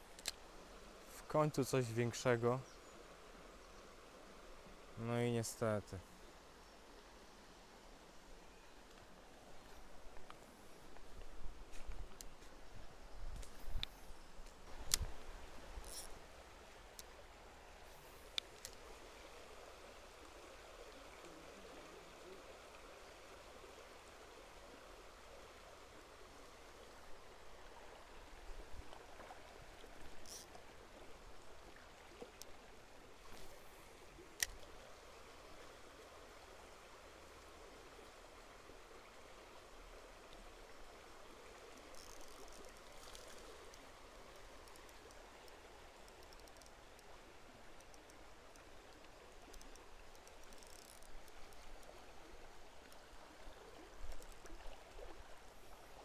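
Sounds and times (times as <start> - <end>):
stream flowing over stones: 0.0 - 56.0
light clicks: 47.8 - 52.0.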